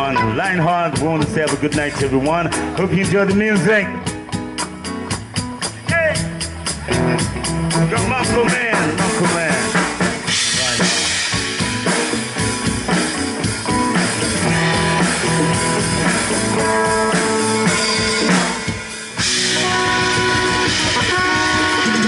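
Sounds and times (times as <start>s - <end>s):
congas played by hand: 0.0s - 22.0s
live band playing: 0.0s - 22.0s.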